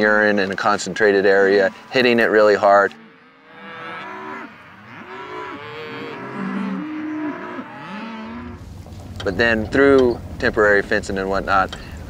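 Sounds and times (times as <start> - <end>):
cows mooing: 0.0 - 8.6.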